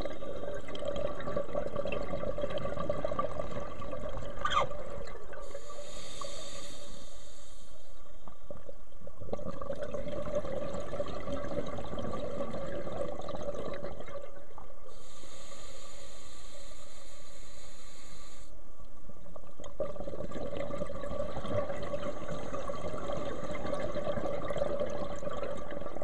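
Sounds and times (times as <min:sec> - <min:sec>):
regulator hissing inhale: 0:05.4 - 0:08.1, 0:14.9 - 0:18.6.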